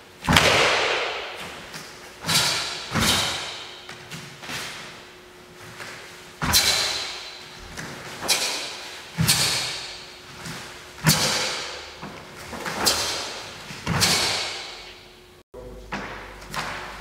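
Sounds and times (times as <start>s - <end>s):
martial arts strikes on mats: 0.2s - 4.0s, 11.0s - 14.8s.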